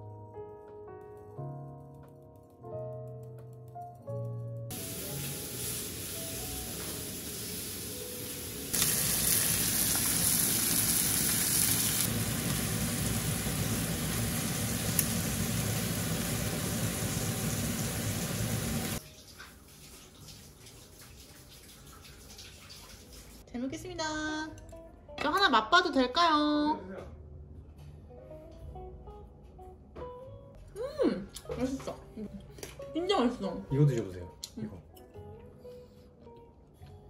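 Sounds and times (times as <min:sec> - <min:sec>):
beef sizzling in a pan: 0:04.7 - 0:21.8.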